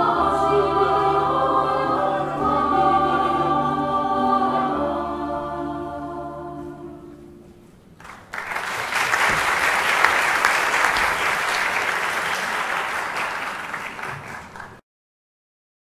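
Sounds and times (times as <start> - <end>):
choir holding a chord: 0.0 - 7.5
audience applause: 8.0 - 14.8.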